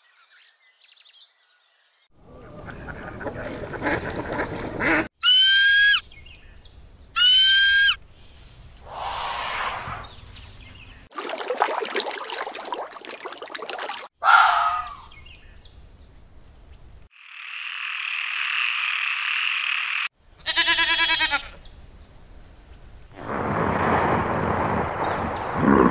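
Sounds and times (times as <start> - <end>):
hissing chorus: 8.8 - 10.2
goat bleating: 20.4 - 21.6.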